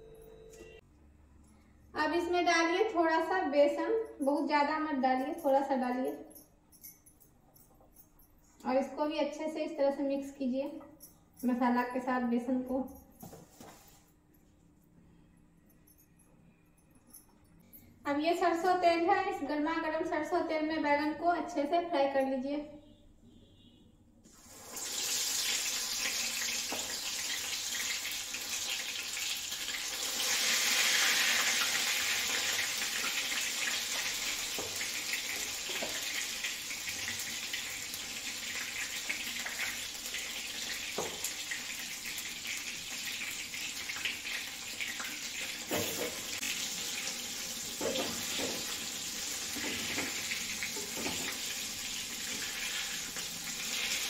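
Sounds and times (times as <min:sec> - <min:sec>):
vegetables sizzling in oil: 0:24.4 - 0:54.0.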